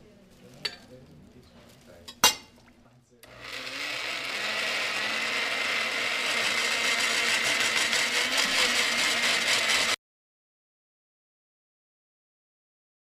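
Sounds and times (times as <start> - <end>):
blender motor churning: 3.2 - 10.0.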